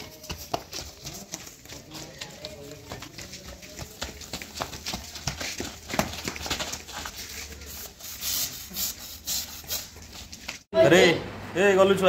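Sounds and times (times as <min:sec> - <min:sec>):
running footsteps on dirt: 0:00.0 - 0:08.0
flip-flops slapping: 0:00.0 - 0:10.7.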